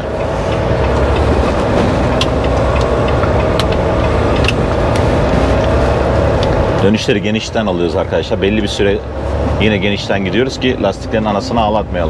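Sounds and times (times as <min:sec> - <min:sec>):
diesel truck engine running: 0:00.0 - 0:12.0.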